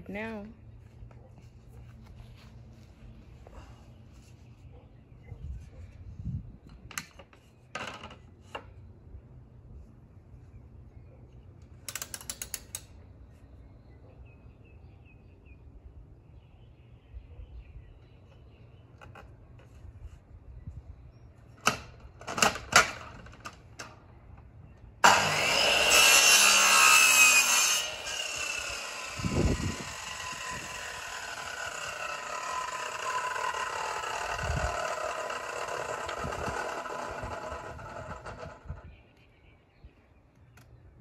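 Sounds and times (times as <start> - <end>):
mitre saw cutting wood: 25.0 - 38.6
saw blade whine spinning down: 25.0 - 38.8.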